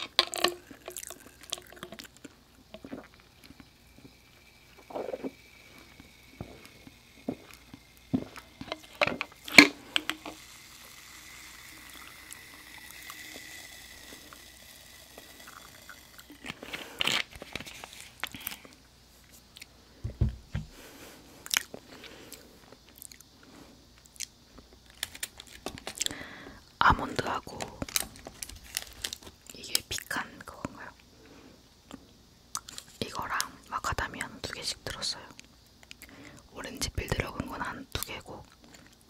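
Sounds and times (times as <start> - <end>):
crunchy bites: 0.0 - 18.8, 21.4 - 23.3, 24.0 - 26.5, 27.6 - 29.7, 31.9 - 33.5
quiet chewing: 0.1 - 19.8, 21.3 - 26.2, 31.9 - 33.6, 35.3 - 36.5, 38.0 - 39.0.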